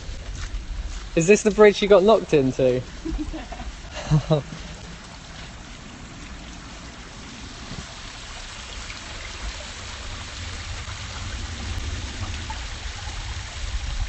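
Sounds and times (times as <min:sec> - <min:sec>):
low rumble: 0:00.0 - 0:14.0
stream rushing over rocks: 0:03.7 - 0:14.0.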